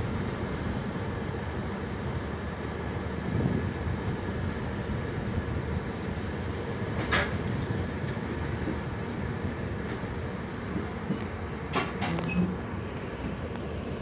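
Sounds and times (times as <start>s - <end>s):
train wheels rumbling on track: 0.0s - 14.0s.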